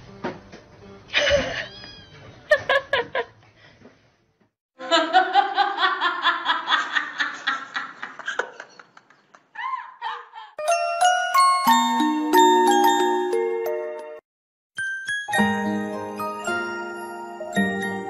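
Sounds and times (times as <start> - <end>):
person laughing: 1.1 - 1.9, 2.5 - 3.3.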